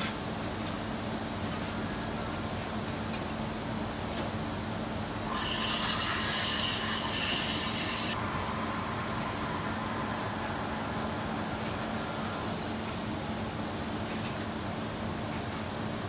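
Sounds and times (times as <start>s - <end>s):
steam wand hissing into milk pitcher: 5.3s - 8.2s.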